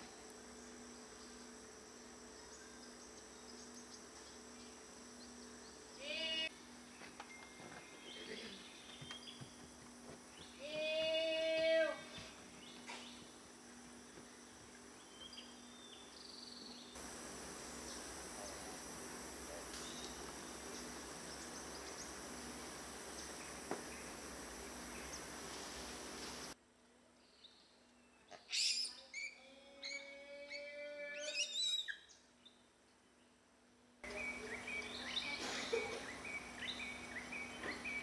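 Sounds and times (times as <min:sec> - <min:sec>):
high insect drone: 0:00.0 - 0:26.6, 0:34.0 - 0:38.0
high-pitched animal calls: 0:28.3 - 0:32.0.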